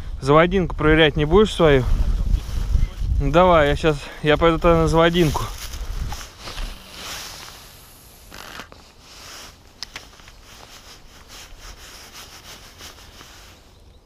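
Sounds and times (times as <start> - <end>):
fishing reel rubbing and scratching: 5.1 - 9.6.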